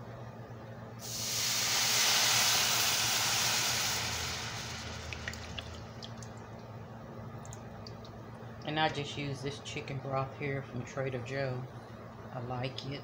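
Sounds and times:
broth hissing in hot skillet: 1.0 - 5.8
faint simmer with light pops: 4.1 - 8.7.

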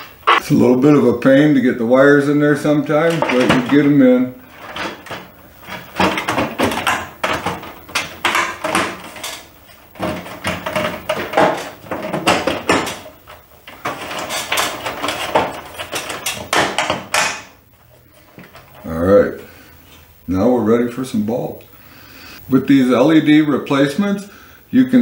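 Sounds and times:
sheet metal scraping and rattling: 2.6 - 18.9.

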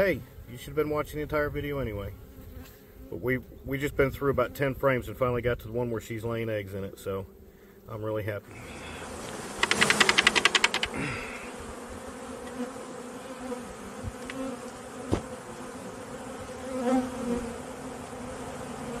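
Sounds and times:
bees buzzing: 6.0 - 19.0
rapid clicking rattle: 9.6 - 11.0.

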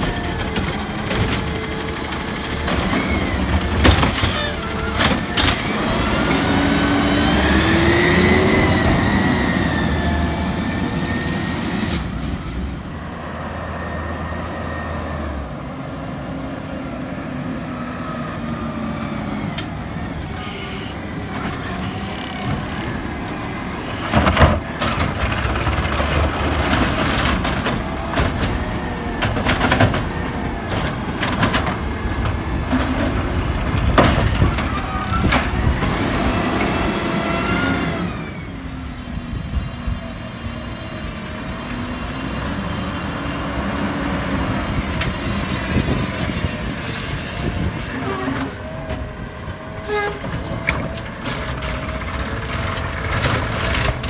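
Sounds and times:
cart clanking against hopper: 0.0 - 13.0, 21.2 - 38.4, 44.9 - 54.0
hydraulic arm whining: 0.0 - 13.0, 19.0 - 38.8
truck engine revving: 0.0 - 16.7, 17.6 - 39.0.

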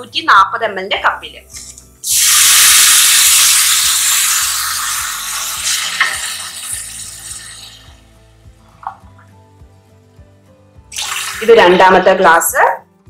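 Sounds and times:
water sizzling in hot pot: 2.0 - 8.1, 10.9 - 12.1.

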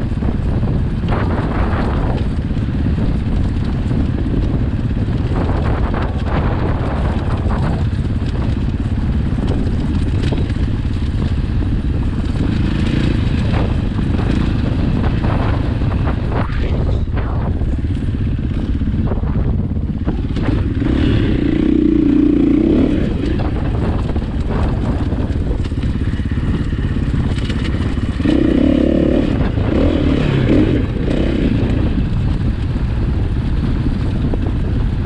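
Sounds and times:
dirt bike engine running: 0.0 - 35.0
bike knocks and rattles: 23.1 - 28.5.

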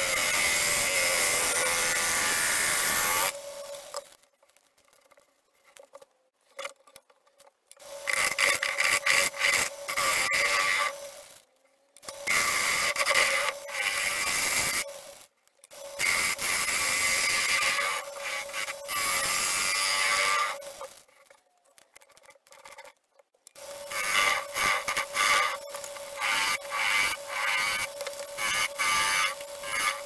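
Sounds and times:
small clicks: 20.8 - 23.8
gouge cutting wood on lathe: 23.6 - 30.0.

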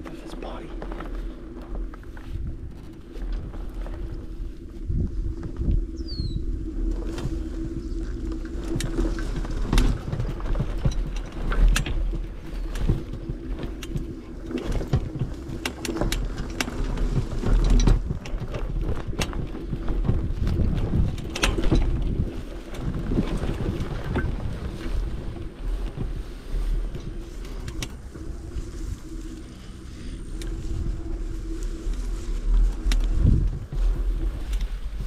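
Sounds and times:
wind buffeting microphone: 0.0 - 35.0
knocks and rattles: 6.9 - 29.0.

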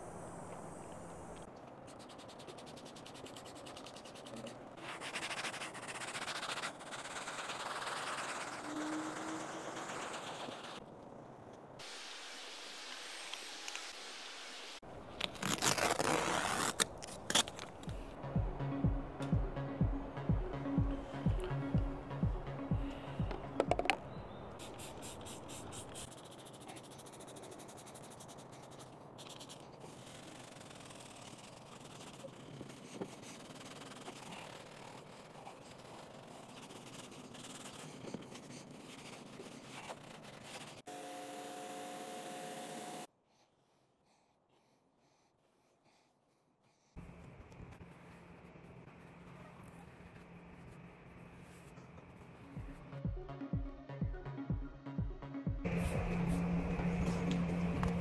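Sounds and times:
rapid scrubbing strokes: 1.8 - 10.8, 24.6 - 40.9
steady hum: 55.7 - 58.0.

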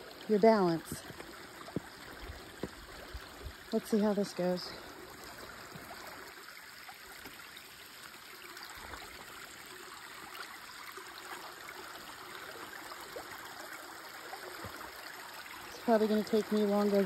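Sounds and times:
stream trickling over rocks: 0.0 - 17.0
footsteps on wooden beams: 1.0 - 2.9.

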